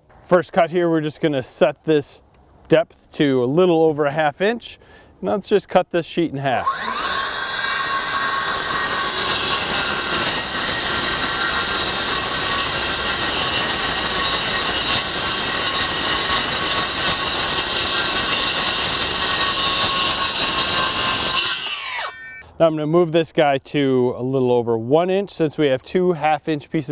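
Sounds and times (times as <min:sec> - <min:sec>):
circular saw cutting wood sheet: 0:06.6 - 0:22.4.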